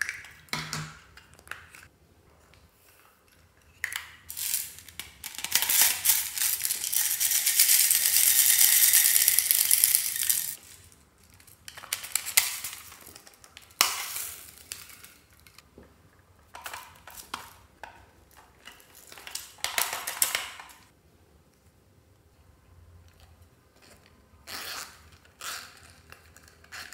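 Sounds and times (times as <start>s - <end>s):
plastic toys rattling: 3.9s - 15.6s, 18.3s - 20.9s.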